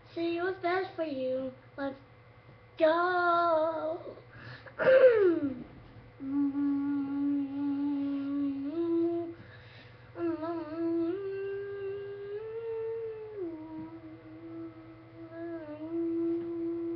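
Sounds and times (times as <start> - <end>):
person humming: 4.8 - 9.4, 10.2 - 16.9.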